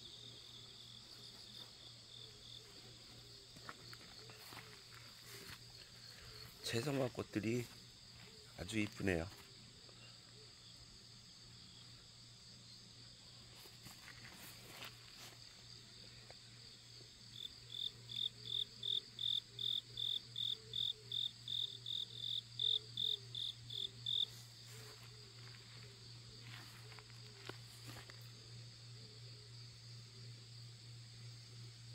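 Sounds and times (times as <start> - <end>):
close insect chirping: 0.0 - 31.9
chorus of insects trilling: 14.7 - 31.9.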